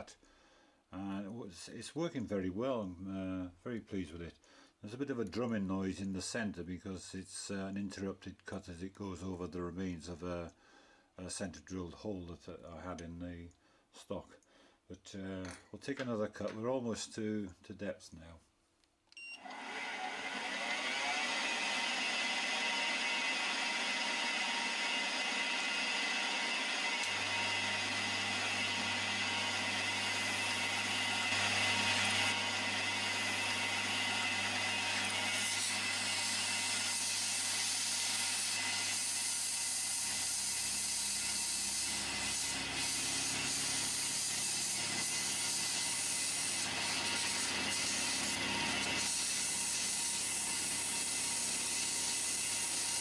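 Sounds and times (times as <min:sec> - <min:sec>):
milling machine cutting: 0:19.5 - 0:53.0.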